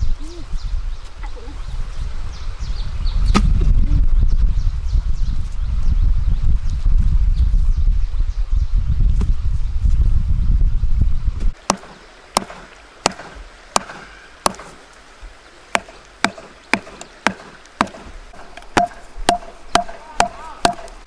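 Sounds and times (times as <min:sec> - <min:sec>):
wooden stick knocking on bamboo post: 0:15.7 - 0:21.0.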